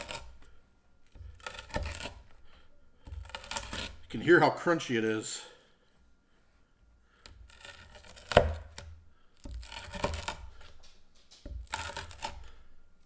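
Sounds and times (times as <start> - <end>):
pizza cutter crunching crust: 0.0 - 4.6, 7.1 - 12.8.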